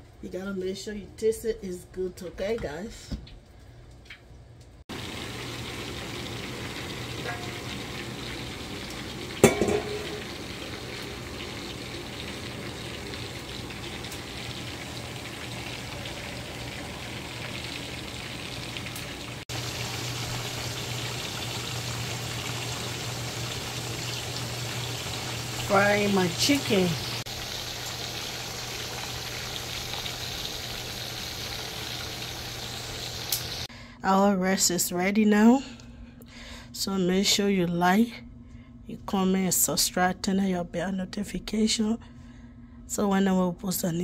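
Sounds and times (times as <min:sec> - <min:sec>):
chicken sizzling in hot oil: 0:04.9 - 0:33.7.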